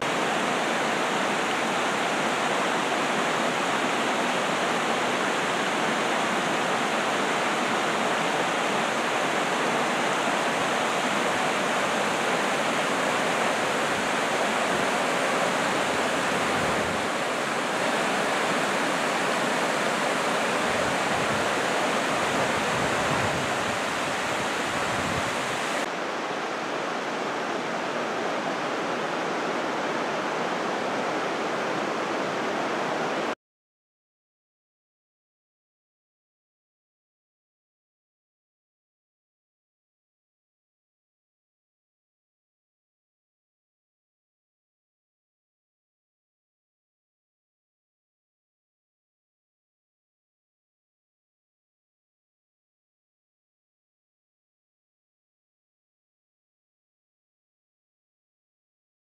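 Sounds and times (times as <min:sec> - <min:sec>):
water rushing over rocks: 0:00.0 - 0:33.4.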